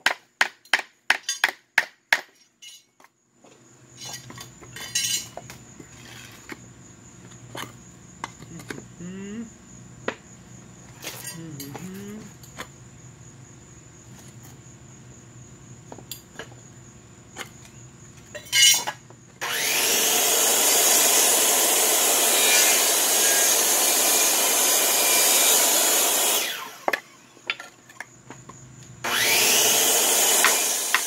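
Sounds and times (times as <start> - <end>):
circular saw cutting wood: 19.4 - 27.3, 29.0 - 31.0.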